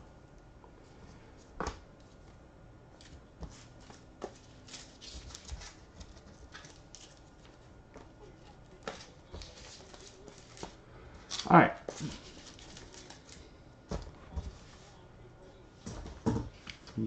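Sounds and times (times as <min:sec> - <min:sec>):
plastic card sleeves rustling: 0:03.6 - 0:07.6, 0:08.4 - 0:13.5.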